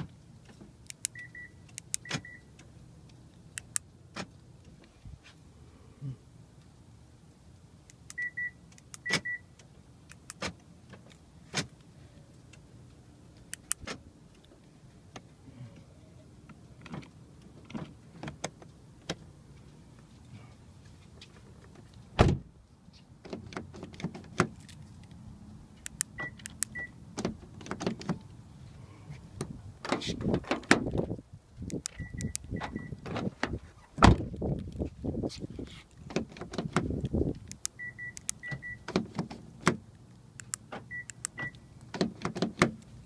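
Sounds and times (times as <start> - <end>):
door lock clicks and clunks: 8.1 - 9.4, 13.6 - 14.0, 25.9 - 28.3, 40.4 - 42.9
loud thump: 22.2 - 22.5.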